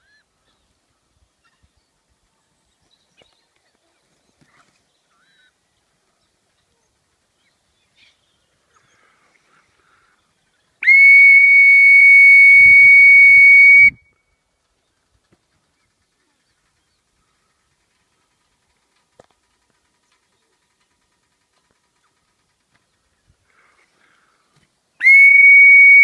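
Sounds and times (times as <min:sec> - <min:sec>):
faint bird calls: 0:00.0 - 0:10.9
long high whistle: 0:10.8 - 0:14.2, 0:25.0 - 0:26.0.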